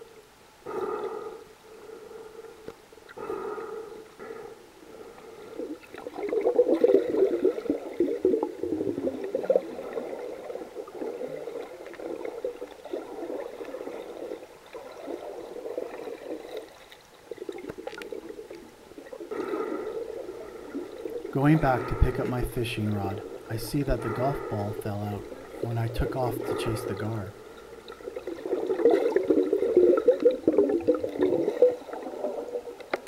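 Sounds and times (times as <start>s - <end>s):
muffled underwater gurgling: 17.4s - 32.8s.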